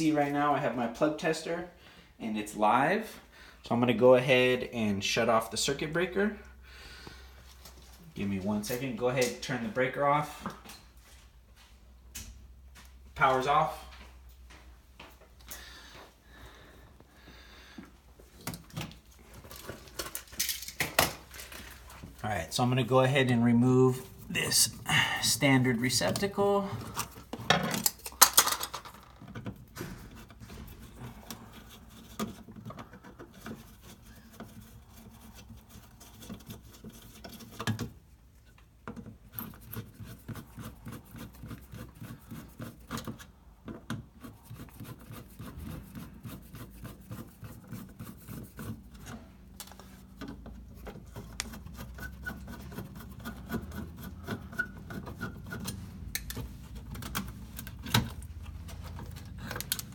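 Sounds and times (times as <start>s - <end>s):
screwdriver scraping screws: 38.9s - 59.9s.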